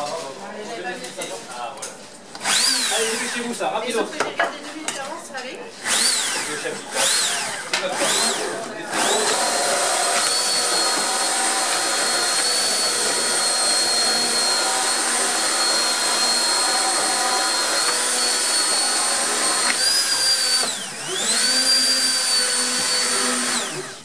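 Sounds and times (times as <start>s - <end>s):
immersion blender whining: 2.3s - 3.7s, 5.8s - 24.0s.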